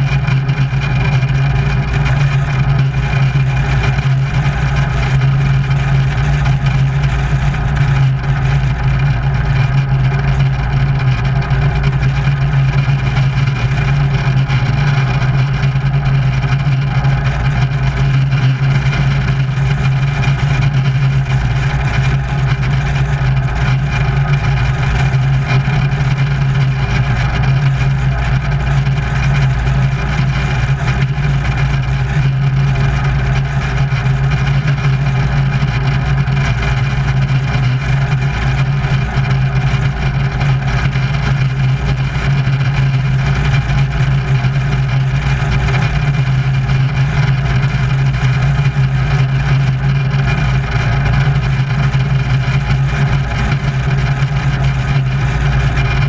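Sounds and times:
propeller plane engine idling: 0:00.0 - 0:56.0.

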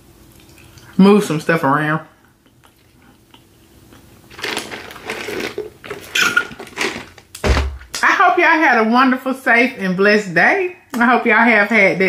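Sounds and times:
slurping water through a straw: 0:04.3 - 0:07.1.

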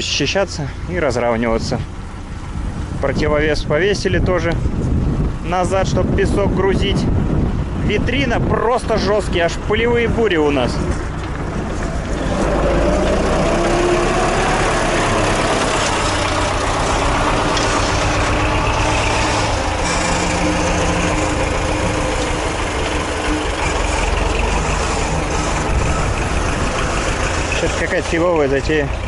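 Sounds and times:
tractor diesel engine under load: 0:00.0 - 0:29.0.

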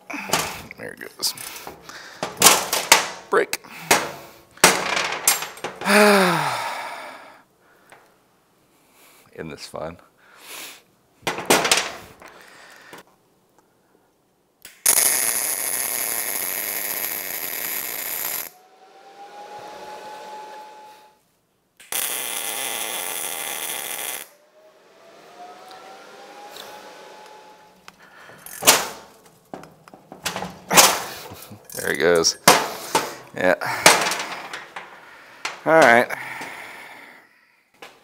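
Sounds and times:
welding arc hissing: 0:14.8 - 0:18.6, 0:21.8 - 0:24.4
faint rising tone: 0:18.2 - 0:21.2, 0:24.2 - 0:31.5.

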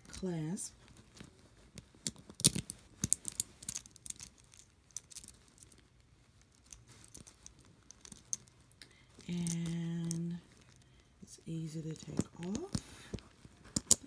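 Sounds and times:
beads clicking together: 0:02.0 - 0:11.0, 0:11.9 - 0:14.0.

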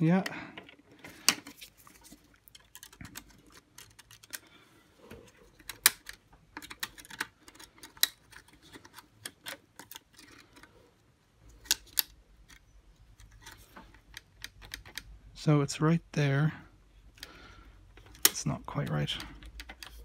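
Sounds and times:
plastic parts clicking: 0:00.2 - 0:04.6, 0:05.3 - 0:10.7, 0:11.5 - 0:15.2, 0:17.1 - 0:20.0.

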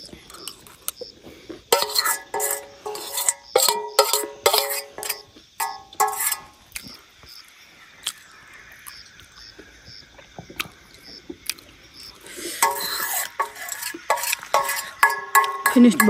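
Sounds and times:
metal spoon scraping steel pot: 0:01.7 - 0:06.6, 0:12.3 - 0:16.0.

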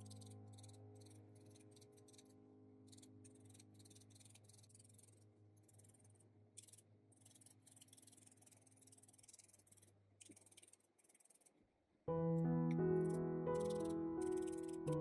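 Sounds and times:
felting needle crunching wool: 0:00.0 - 0:11.9.

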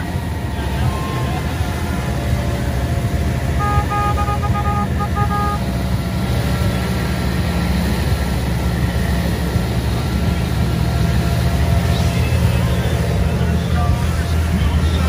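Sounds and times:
motorboat engine running: 0:00.0 - 0:15.0
horn short toots: 0:03.6 - 0:05.7.

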